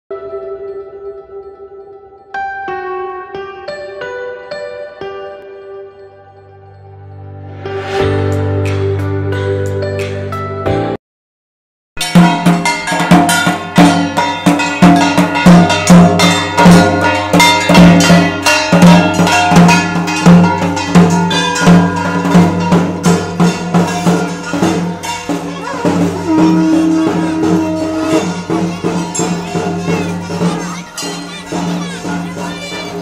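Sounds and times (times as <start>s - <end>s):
ringing metallic gong clang: 12.0s - 32.7s
fast drum percussion: 12.0s - 33.0s.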